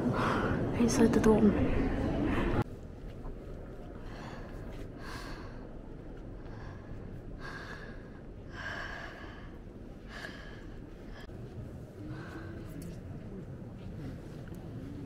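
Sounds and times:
person breathing heavily: 0:03.9 - 0:13.0.

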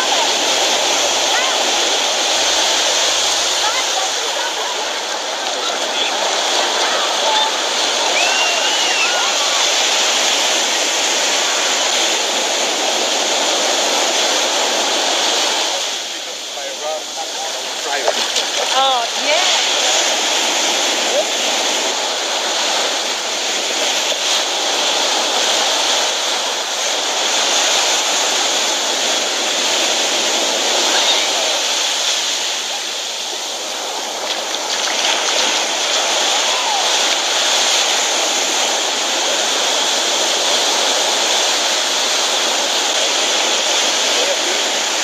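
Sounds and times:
waves breaking on beach: 0:00.0 - 0:45.0.

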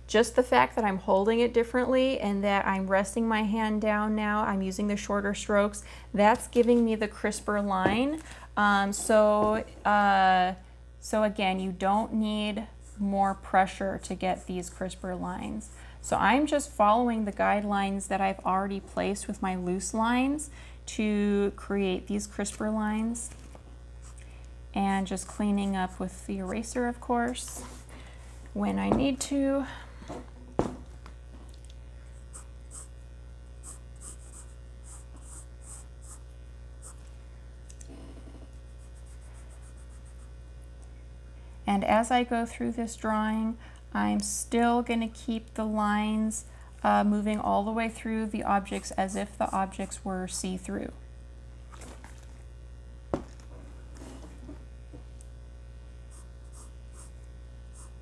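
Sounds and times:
low mains hum: 0:00.0 - 0:58.0
eraser rubbing on paper: 0:32.3 - 0:32.9, 0:33.6 - 0:37.1, 0:38.7 - 0:40.3, 0:56.1 - 0:58.0
pencil scratching on paper: 0:32.3 - 0:32.9, 0:33.6 - 0:37.1, 0:38.7 - 0:40.3, 0:56.1 - 0:58.0.

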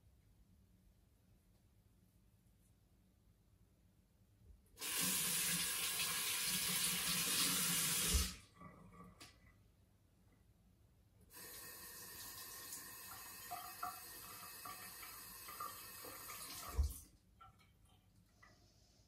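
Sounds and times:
tap water running into sink: 0:04.8 - 0:08.4, 0:11.4 - 0:17.6.

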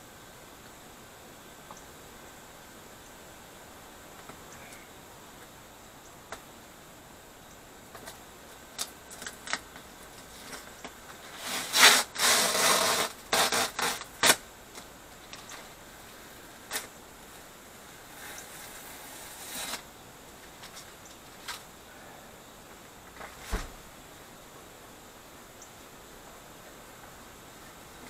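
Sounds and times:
sticker scraping and clicking: 0:11.4 - 0:14.4
sticker tearing off cardboard: 0:11.4 - 0:14.4, 0:18.6 - 0:19.8.

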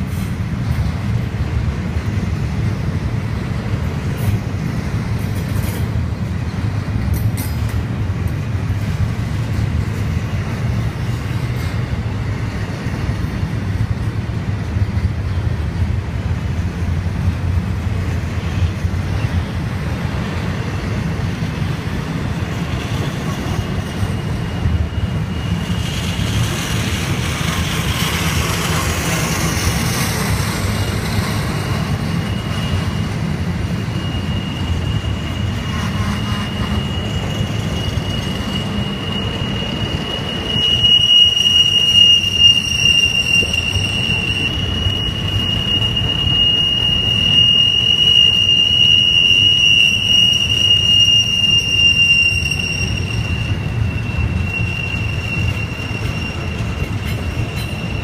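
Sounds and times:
train wheels rumbling on rail: 0:00.0 - 0:58.0
high wheel squeal: 0:08.3 - 0:14.0, 0:18.1 - 0:58.0.

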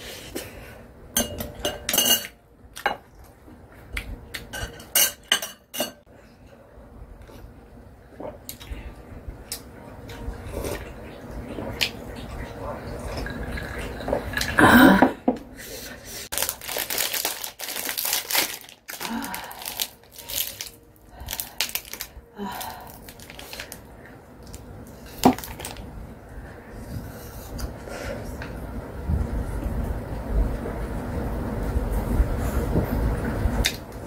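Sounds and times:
snack wrapper tearing and crinkling: 0:16.3 - 0:23.8, 0:25.3 - 0:25.8.

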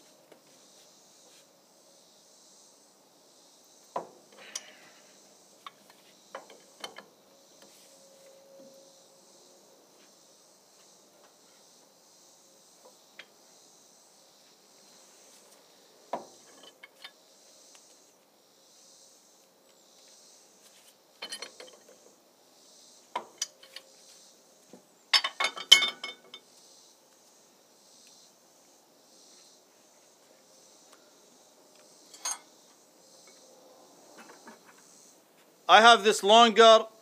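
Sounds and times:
insects chirring: 0:00.0 - 0:37.0.

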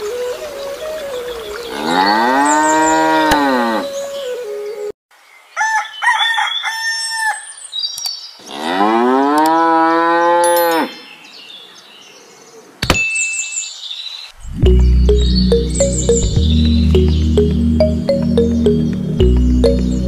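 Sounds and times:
cow mooing: 0:01.7 - 0:03.9.

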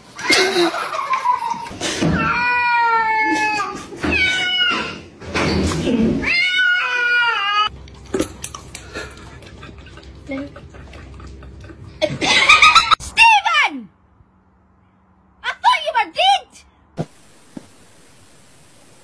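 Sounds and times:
cat yowling: 0:06.2 - 0:07.7.

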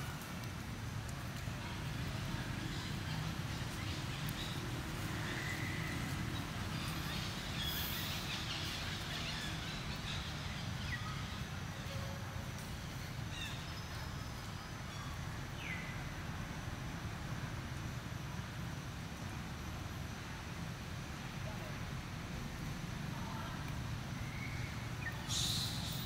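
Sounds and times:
bird chirps: 0:24.2 - 0:26.0.

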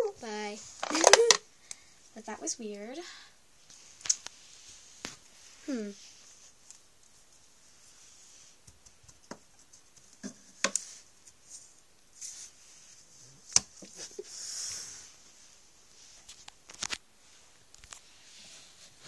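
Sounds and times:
plastic toys clicking and tapping: 0:00.8 - 0:01.4
soft rustle: 0:03.6 - 0:19.0.

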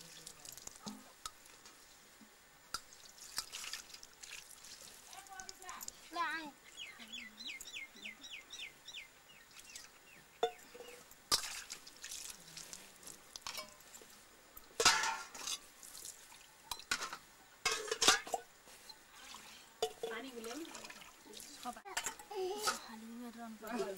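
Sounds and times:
water splashing: 0:02.8 - 0:06.1, 0:09.5 - 0:14.1, 0:19.2 - 0:22.1
metal dishes clinking and clattering: 0:13.4 - 0:14.0, 0:14.8 - 0:15.6, 0:16.7 - 0:18.5, 0:19.8 - 0:20.3, 0:21.9 - 0:22.9.

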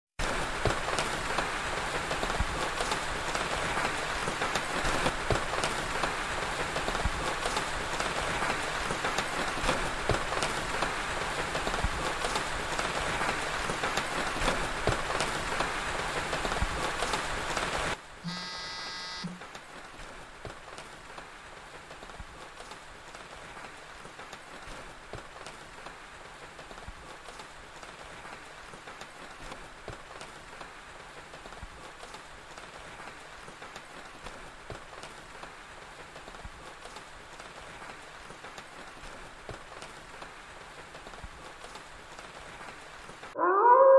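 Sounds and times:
steady rain: 0:00.2 - 0:43.4
short electronic tone: 0:18.3 - 0:19.4.

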